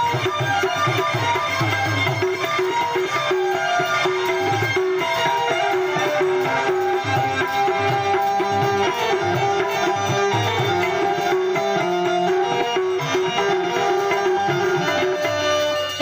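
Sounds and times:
steady melody: 0.0 - 16.0.

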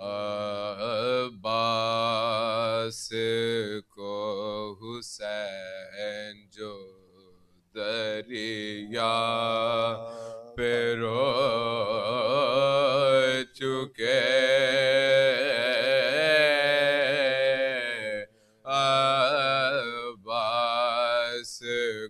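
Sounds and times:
men chanting unaccompanied: 7.8 - 22.0.

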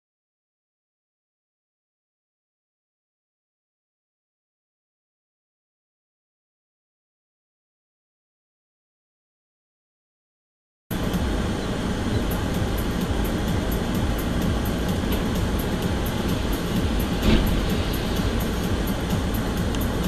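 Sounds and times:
moving vehicle rumble: 10.9 - 20.0.

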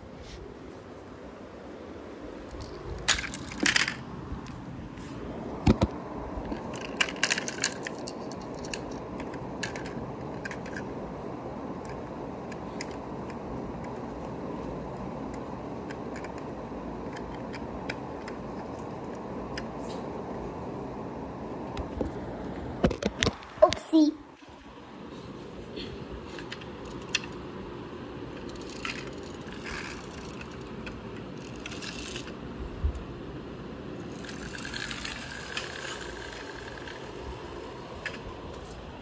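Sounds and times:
metal toy cars clattering: 2.6 - 4.0, 6.5 - 10.9, 28.4 - 32.4, 34.1 - 37.4.

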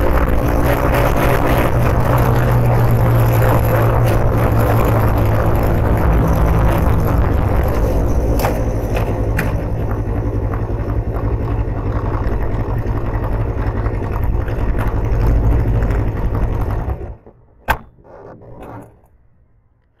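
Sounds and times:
motorcycle engine running: 0.0 - 17.2.

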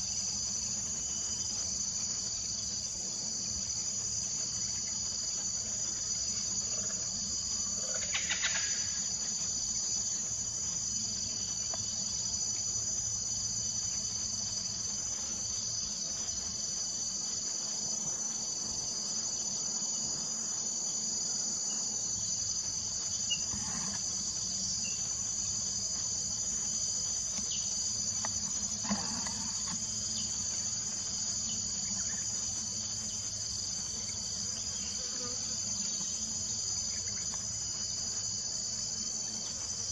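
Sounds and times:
insects chorus: 0.0 - 39.9.

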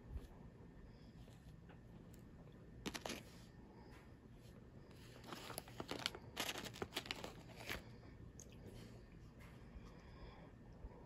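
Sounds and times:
snack packaging crinkling and tearing: 5.2 - 7.8.

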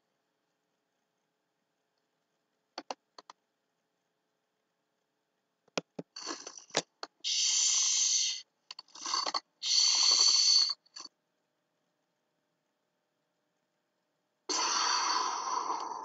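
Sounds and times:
hissing breaths: 7.2 - 11.0, 14.5 - 16.0.

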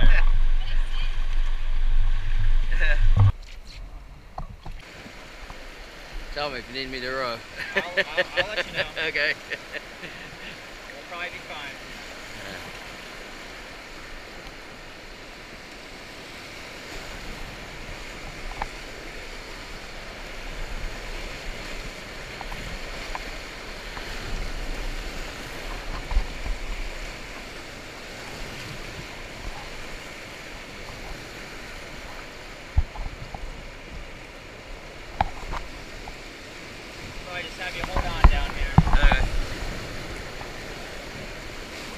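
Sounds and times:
whitewater rapids rushing: 4.8 - 15.3.

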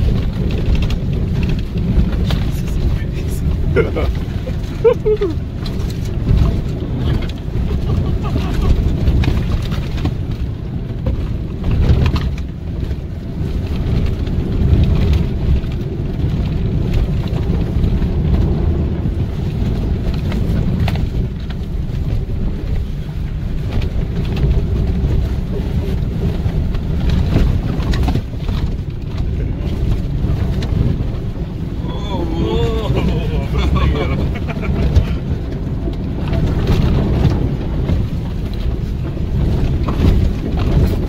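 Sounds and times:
engine and tyre rumble: 0.0 - 41.0.

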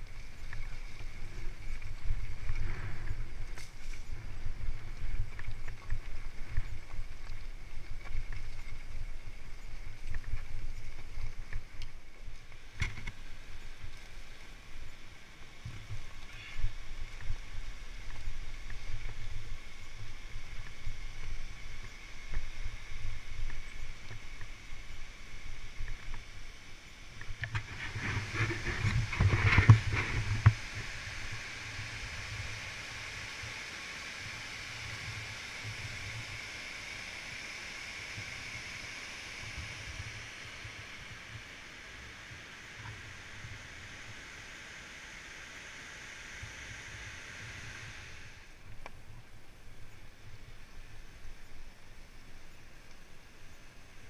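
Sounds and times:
bike rumbling over rough trail: 0.0 - 26.4, 27.2 - 32.5.

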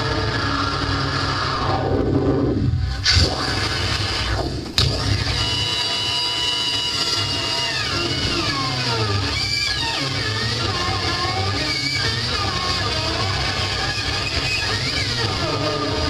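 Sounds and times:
low rumble: 0.0 - 5.5
scraping wall of distortion: 0.0 - 16.0.

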